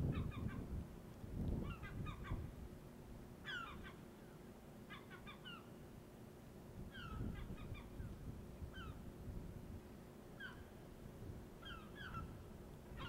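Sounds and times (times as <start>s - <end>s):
low steady rumble: 0.0s - 13.0s
birds calling: 1.6s - 2.5s, 3.4s - 5.8s, 6.9s - 9.0s, 10.4s - 10.8s, 11.6s - 13.0s.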